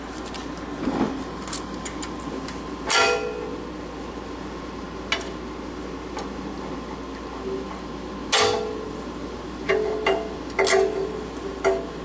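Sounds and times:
loud ringing metal clank: 2.9s - 3.6s, 8.3s - 9.0s.

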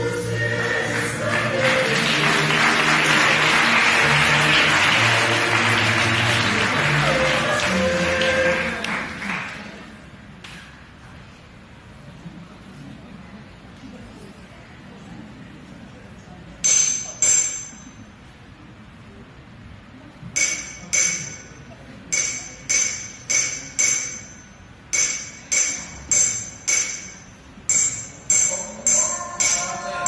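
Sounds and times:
bell-like metallic percussion: 16.6s - 18.2s, 20.4s - 30.0s.

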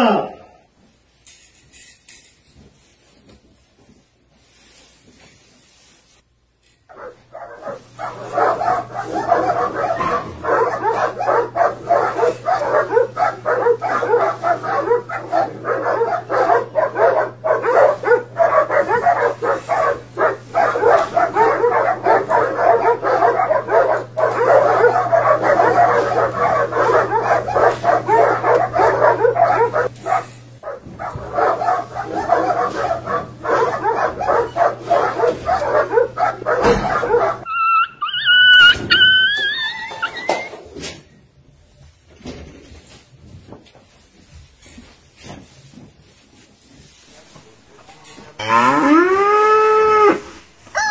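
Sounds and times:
steady low hum: 6.6s - 37.5s
dogs barking and whining: 6.9s - 40.8s, 48.4s - 50.9s.

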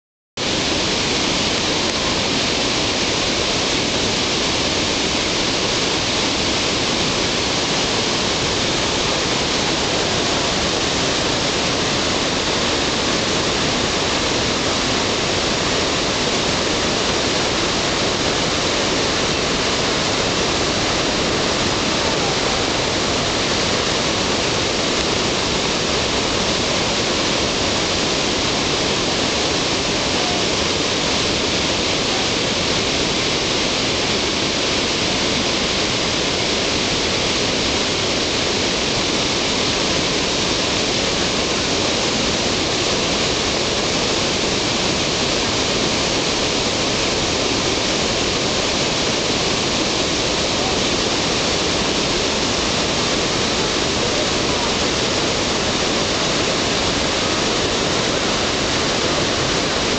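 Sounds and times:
waterfall rushing: 0.4s - 59.9s.

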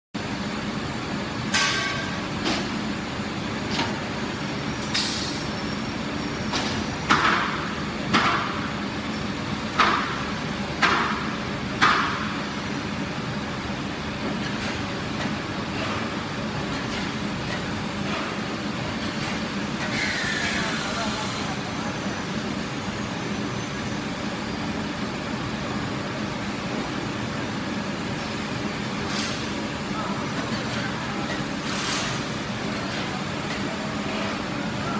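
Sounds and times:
factory machinery hum: 0.2s - 34.9s
machine hissing and clanking bursts: 4.8s - 5.6s, 14.4s - 21.7s, 29.0s - 29.7s, 31.6s - 33.1s.

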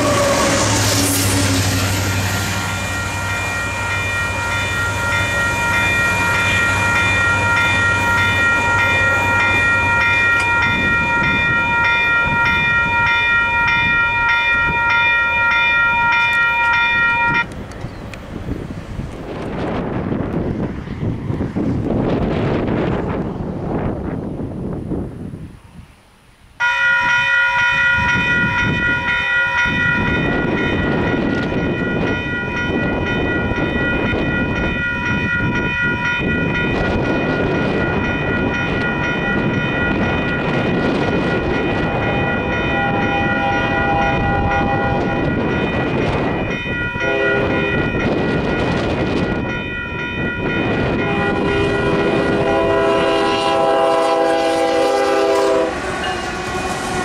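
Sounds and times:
locomotive horn blasts: 0.0s - 2.2s, 41.8s - 45.4s, 47.0s - 47.9s, 50.9s - 57.0s
railroad crossing bell ringing: 0.0s - 18.1s, 26.6s - 57.0s.

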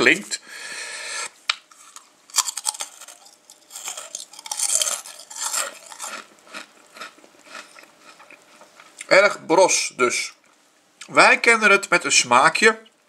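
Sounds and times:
crisp being bitten and chewed: 1.7s - 9.0s.

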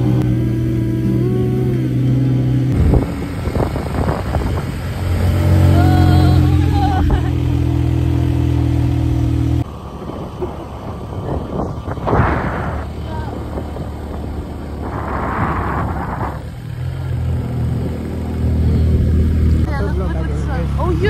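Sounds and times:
small motorcycle engine running: 0.0s - 21.0s
wind rushing over microphone: 2.5s - 7.4s, 9.6s - 19.7s.

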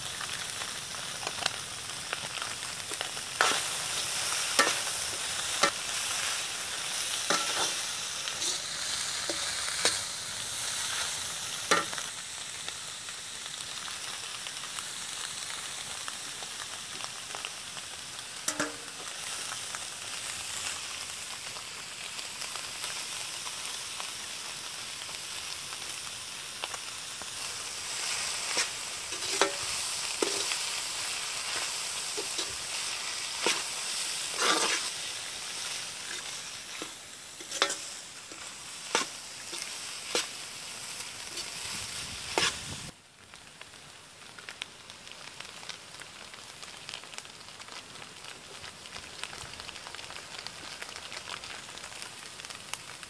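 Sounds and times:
food sizzling in a pan: 0.0s - 53.0s
metal ladle scraping a pan: 3.4s - 6.3s, 6.9s - 10.1s, 18.5s - 19.0s, 28.0s - 30.7s, 31.4s - 40.3s, 42.3s - 42.6s.

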